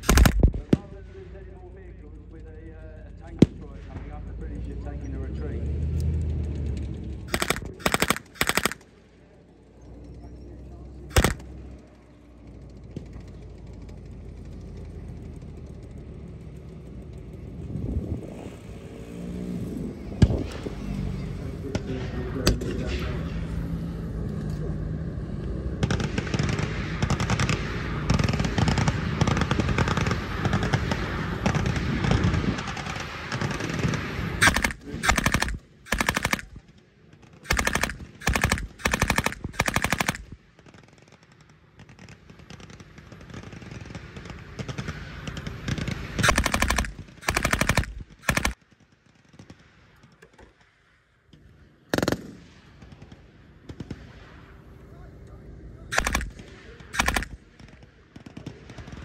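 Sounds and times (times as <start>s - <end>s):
machine guns firing: 0.0s - 1.4s, 7.3s - 9.0s, 11.1s - 11.7s, 25.7s - 50.1s, 51.9s - 54.0s, 55.9s - 59.0s.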